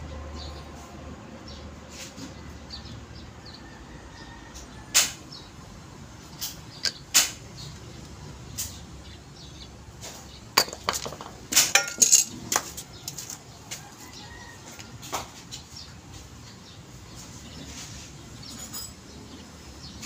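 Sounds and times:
metal tools clinking on concrete: 10.0 - 13.5, 18.4 - 19.4.

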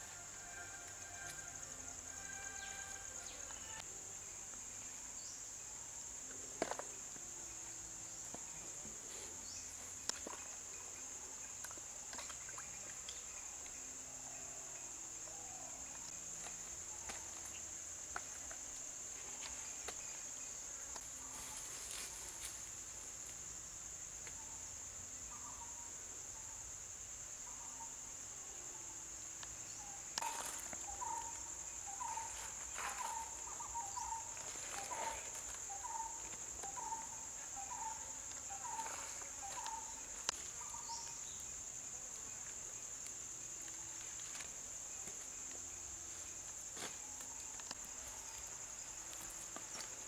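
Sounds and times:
insects shrilling: 30.1 - 42.0.

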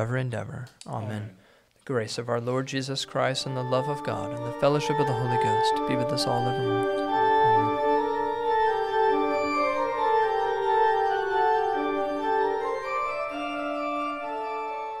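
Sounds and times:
organ playing slow chords: 3.0 - 15.0.

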